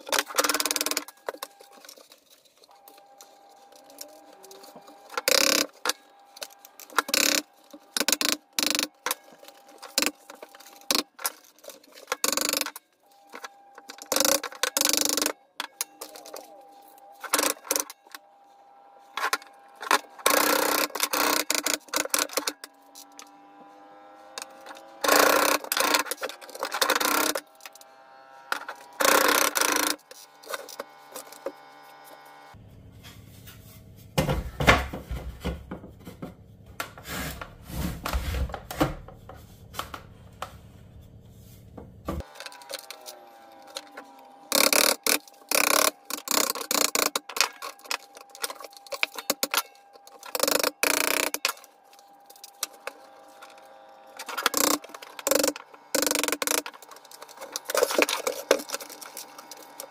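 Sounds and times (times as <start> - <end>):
hand tool scraping wood: 15.9 - 31.6, 36.9 - 39.4, 42.2 - 59.9.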